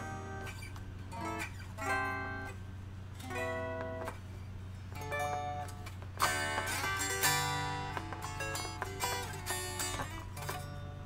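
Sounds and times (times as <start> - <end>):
unplugged electric guitar notes: 0.0 - 4.3, 4.9 - 11.0.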